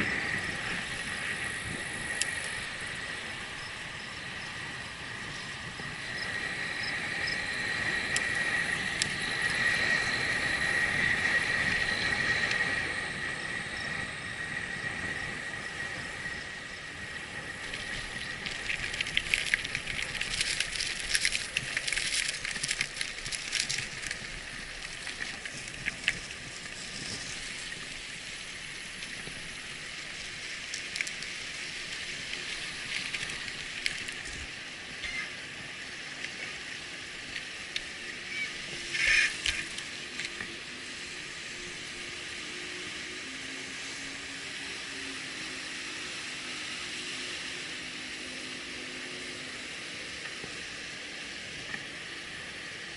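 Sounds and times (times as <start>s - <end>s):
bicycle tyre and wind noise: 0.0s - 52.9s
high whine: 0.0s - 52.9s
tyres crackling on gravel: 15.6s - 34.6s.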